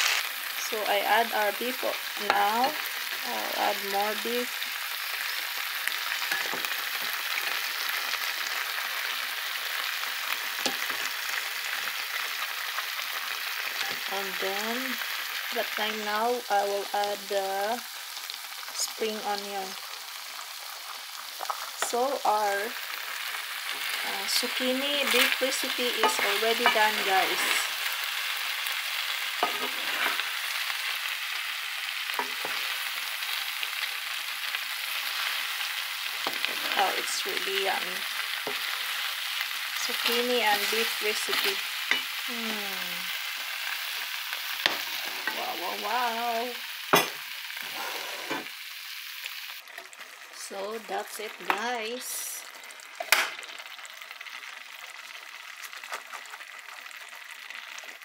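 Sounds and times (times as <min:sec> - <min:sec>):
food sizzling in frying pan: 0:00.0 - 0:58.0
wooden spoon scraping a pan: 0:23.7 - 0:27.9, 0:29.4 - 0:30.5, 0:36.2 - 0:37.4, 0:44.7 - 0:45.7, 0:47.6 - 0:48.5.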